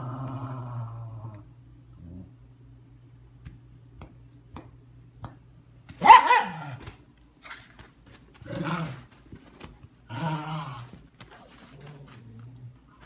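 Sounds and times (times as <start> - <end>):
dog barking: 6.0 - 6.8.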